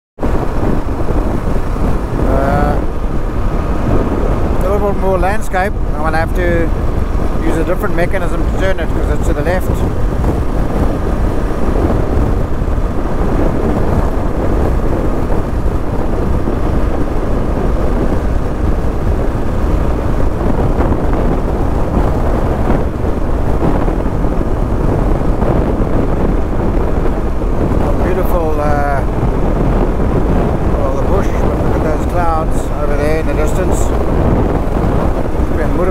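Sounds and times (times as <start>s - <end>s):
wind buffeting microphone: 0.2s - 35.9s.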